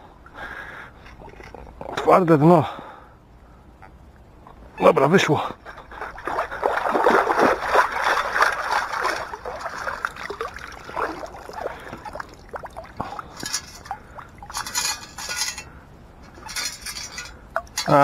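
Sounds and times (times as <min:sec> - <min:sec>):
water splashing from scoop: 0:05.9 - 0:15.6.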